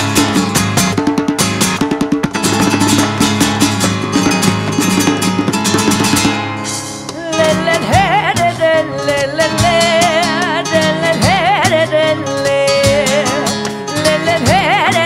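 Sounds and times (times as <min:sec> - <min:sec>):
flamenco guitar strumming: 0:00.0 - 0:15.0
woman singing with heavy vibrato: 0:07.0 - 0:15.0.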